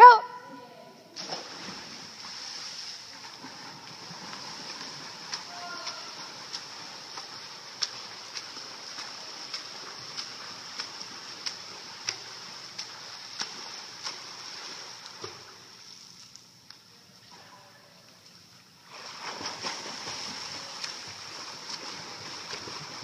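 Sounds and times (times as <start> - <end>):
steady background hiss: 0.4 - 23.0
swimming strokes splashing: 1.2 - 16.7, 18.4 - 23.0.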